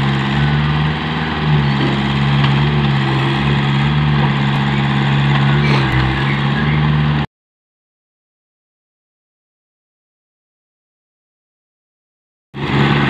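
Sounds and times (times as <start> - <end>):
excavator diesel engine running: 0.0 - 7.3, 12.6 - 13.0.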